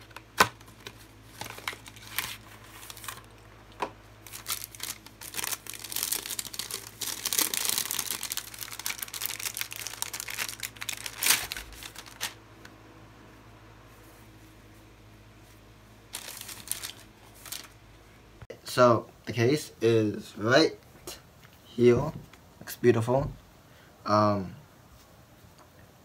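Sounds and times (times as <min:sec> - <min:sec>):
plastic bag crinkling: 0:00.0 - 0:03.4, 0:04.2 - 0:12.4, 0:16.1 - 0:17.8.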